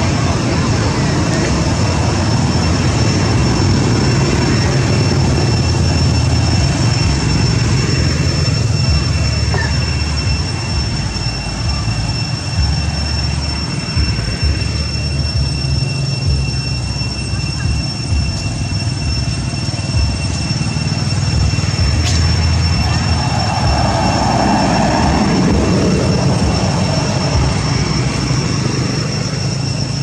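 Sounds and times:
high-pitched whine: 0.0 - 30.0
wind buffeting microphone: 21.4 - 29.3.

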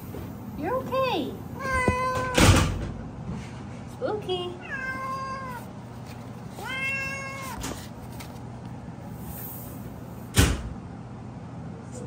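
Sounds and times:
cat meowing: 1.6 - 2.6, 4.6 - 5.7, 6.6 - 7.7.

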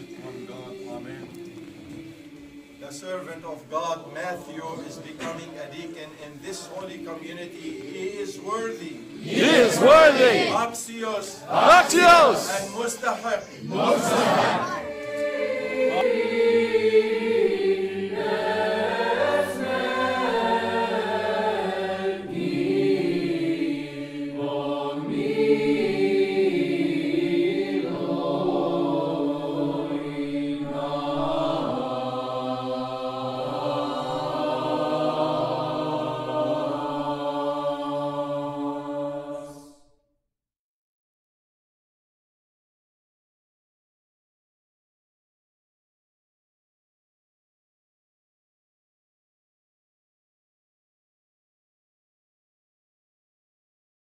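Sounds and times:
choir singing a chant: 0.0 - 39.9.

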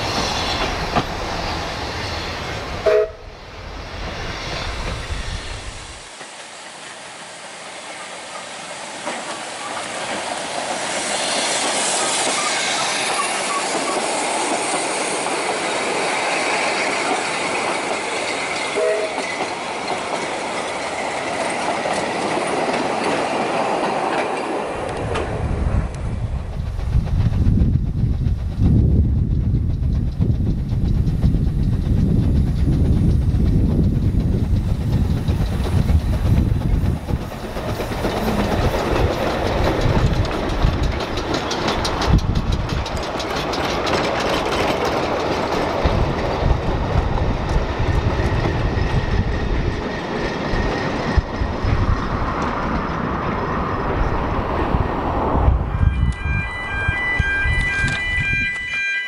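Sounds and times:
steam locomotive rumble: 0.0 - 58.6
wagons rattling over rail joints: 11.6 - 25.3, 29.6 - 54.4.

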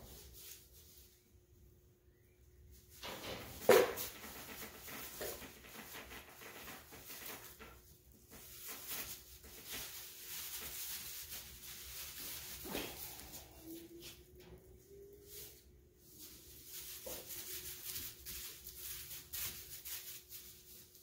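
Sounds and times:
hay rustling: 0.0 - 1.6, 8.2 - 14.2, 15.1 - 21.0.

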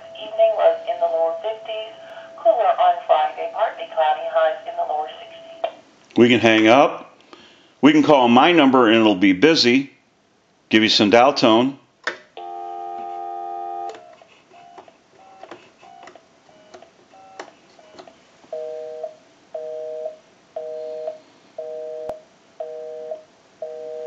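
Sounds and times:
telephone dial tone: 12.4 - 24.0.

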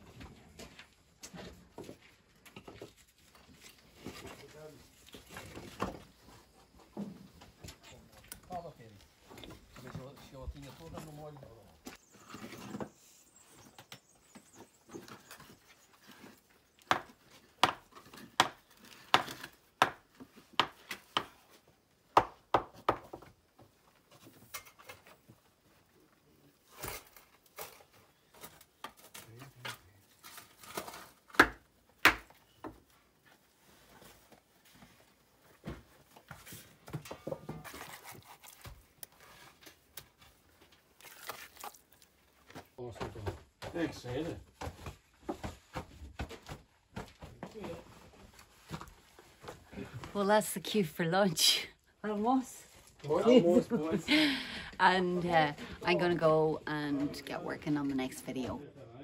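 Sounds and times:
trowel scraping mortar: 37.5 - 39.6.

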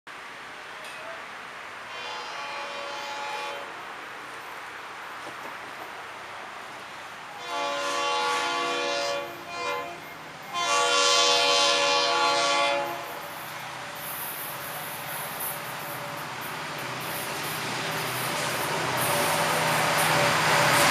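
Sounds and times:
low rumble of train: 0.1 - 20.9
train air horn blasts: 1.9 - 3.7, 7.4 - 13.3.

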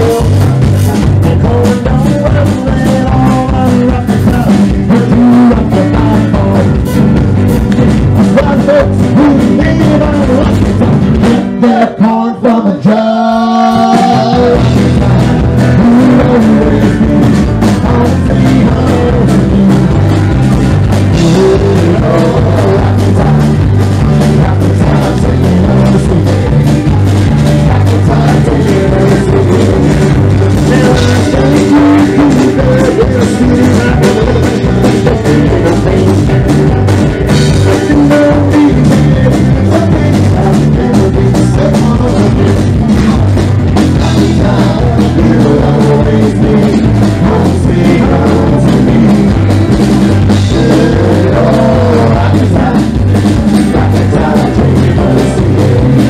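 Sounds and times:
electric guitar lead notes: 0.0 - 56.0
rock band playing: 0.0 - 56.0.

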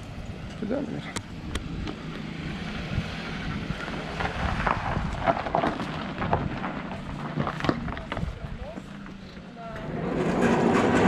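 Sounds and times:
car engine running low: 0.0 - 11.0
wind on microphone: 1.4 - 8.8.

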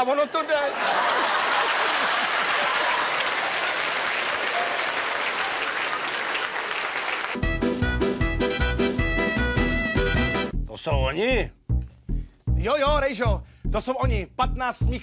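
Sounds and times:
audience applauding: 0.0 - 7.7
music with steady beat: 7.4 - 15.0.

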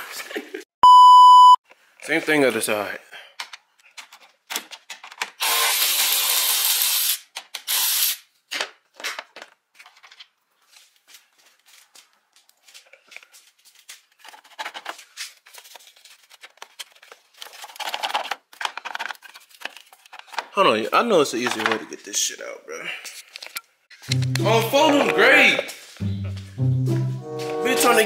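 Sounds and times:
tools clicking and knocking: 3.4 - 5.4.

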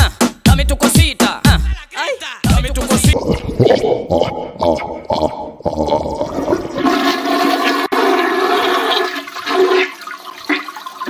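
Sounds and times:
music beat: 0.0 - 5.6.

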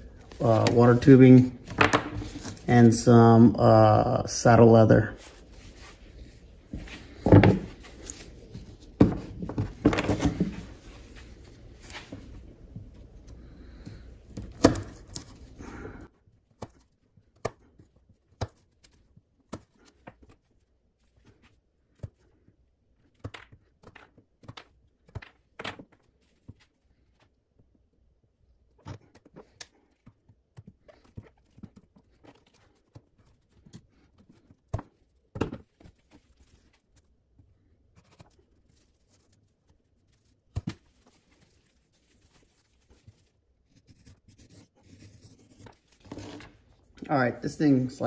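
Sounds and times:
background hum: 0.0 - 23.1.

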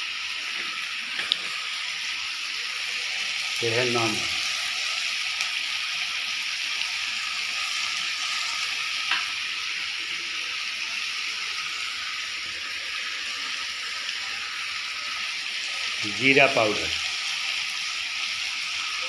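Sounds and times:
food sizzling in a pan: 0.0 - 19.0.

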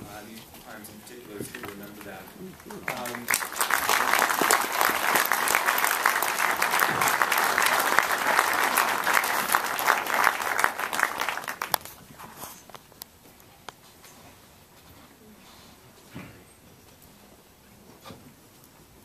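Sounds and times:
audience applauding: 1.6 - 12.0.

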